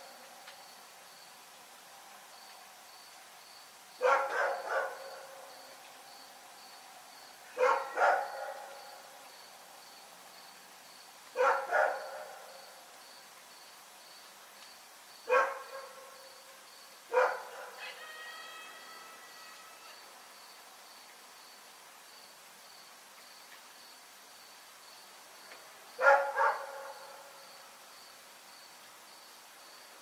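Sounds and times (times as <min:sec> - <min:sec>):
dog barking: 0:04.0 - 0:05.4, 0:07.6 - 0:08.8, 0:11.4 - 0:12.6, 0:15.3 - 0:16.2, 0:17.1 - 0:18.0, 0:26.0 - 0:27.3.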